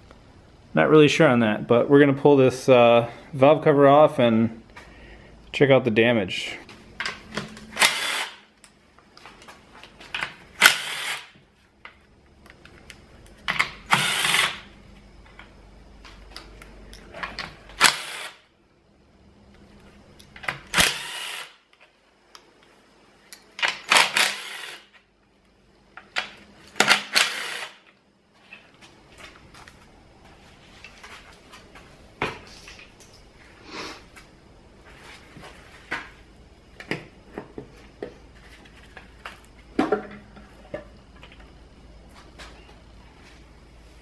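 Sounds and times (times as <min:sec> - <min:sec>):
cordless drill spinning bolts: 0:07.8 - 0:08.4, 0:10.6 - 0:11.3, 0:13.9 - 0:14.6, 0:17.8 - 0:18.4, 0:20.7 - 0:21.5, 0:23.9 - 0:24.8, 0:26.8 - 0:27.8.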